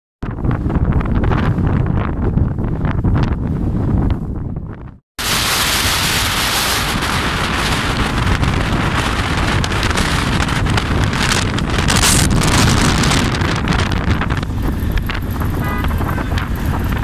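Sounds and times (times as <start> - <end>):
wind buffeting microphone: 0.2 - 17.0
motorcycle engine running: 6.4 - 17.0.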